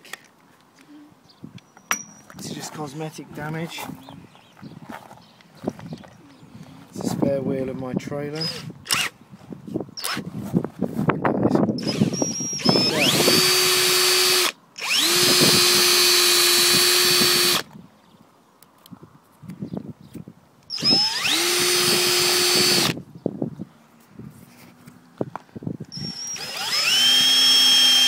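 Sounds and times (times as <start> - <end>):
cordless drill whine: 8.4 - 9.1, 11.8 - 17.7, 20.7 - 23.0, 25.9 - 28.0.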